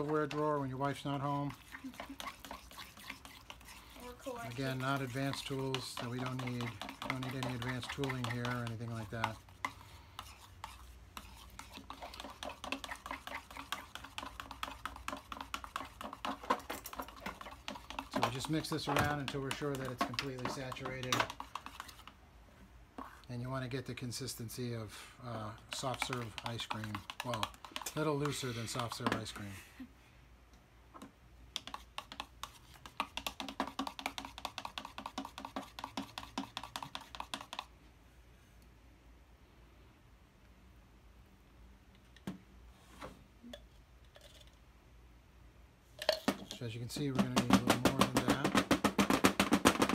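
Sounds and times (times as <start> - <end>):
utensil stirring plaster in a cup: 0.0 - 22.3, 22.9 - 29.6, 31.0 - 37.8, 43.5 - 44.6, 46.0 - 49.9
utensil clicking against cup: 25.7 - 28.4.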